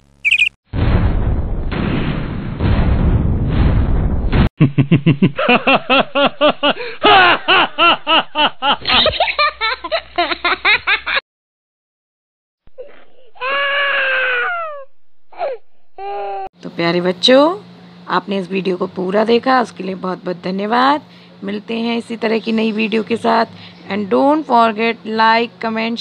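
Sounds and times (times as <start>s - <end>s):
children laughing: 4.7s - 11.2s.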